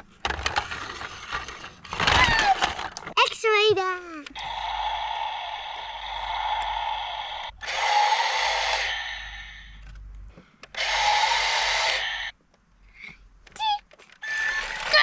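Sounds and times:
toy electric motor running: 0:00.5 - 0:02.9, 0:04.3 - 0:09.8, 0:10.8 - 0:12.3, 0:14.2 - 0:15.0.

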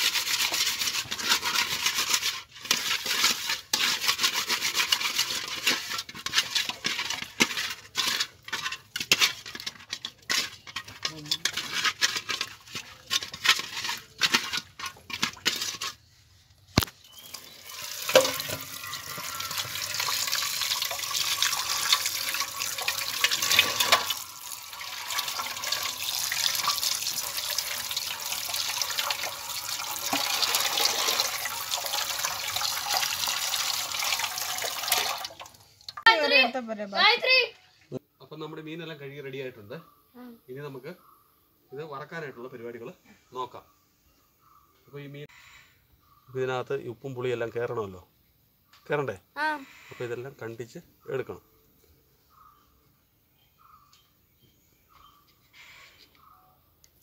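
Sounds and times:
tap water pouring and splashing: 0:00.0 - 0:10.9, 0:16.8 - 0:36.1
hands scrubbing fish in salt: 0:00.0 - 0:16.2, 0:16.8 - 0:35.2.

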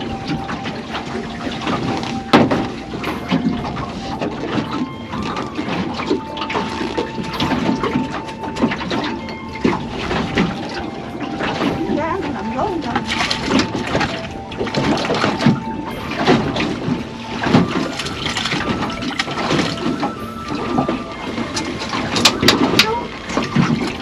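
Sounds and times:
water sloshing and gurgling: 0:00.0 - 0:24.0.

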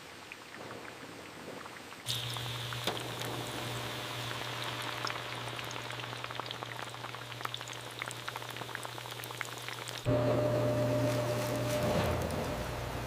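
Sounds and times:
chips deep-frying in hot oil: 0:02.0 - 0:10.1
low hum: 0:10.0 - 0:13.0.

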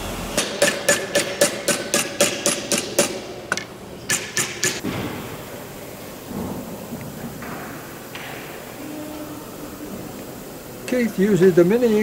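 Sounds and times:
mallet striking metal strip: 0:00.4 - 0:04.8.

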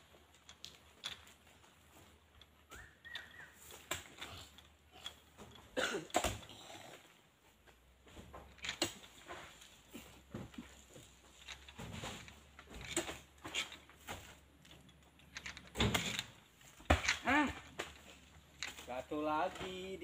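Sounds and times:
knocks and thuds of fruit bunches: 0:08.0 - 0:14.4, 0:15.7 - 0:20.0.

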